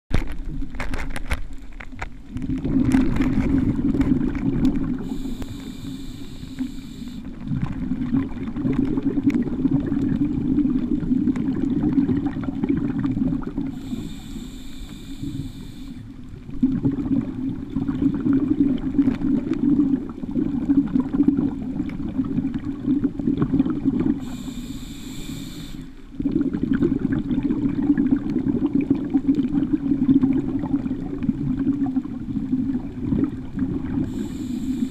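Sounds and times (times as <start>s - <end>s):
exhaled air bubbling: 0.1s - 34.9s
hissing regulator inhales: 5.0s - 7.3s, 13.7s - 16.1s, 24.2s - 26.0s, 34.0s - 34.9s.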